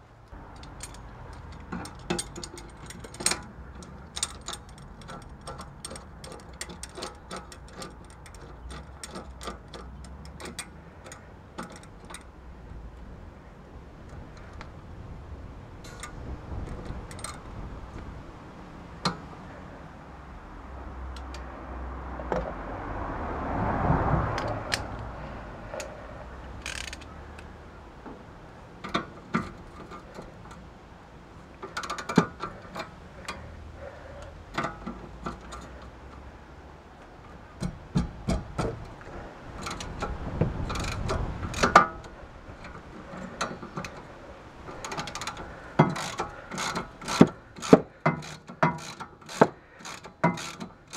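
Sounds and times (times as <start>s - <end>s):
wrenches clicking on metal nut: 0.4s - 12.7s, 15.8s - 18.2s, 25.7s - 27.6s, 28.8s - 36.4s, 37.0s - 50.9s.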